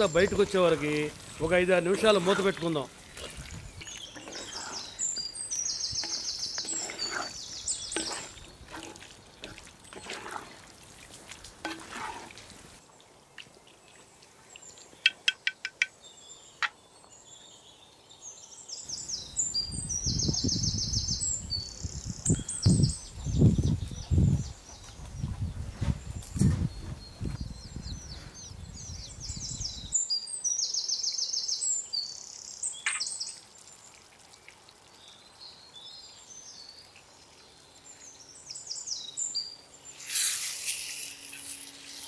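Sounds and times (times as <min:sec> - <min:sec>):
small birds trilling: 0:00.0 - 0:10.6, 0:13.9 - 0:33.9
spatula stirring in clay pot: 0:01.9 - 0:10.8, 0:11.6 - 0:12.5.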